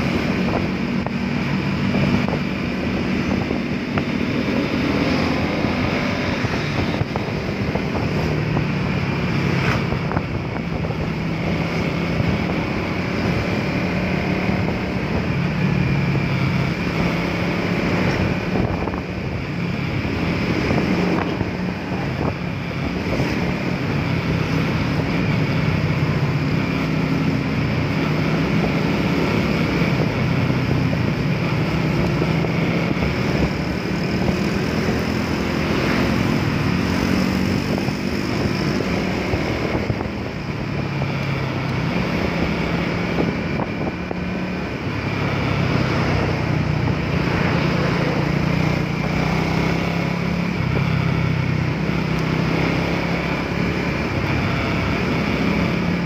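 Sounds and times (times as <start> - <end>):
motorcycle engine running: 0.0 - 56.0
wind noise on microphone: 0.0 - 56.0.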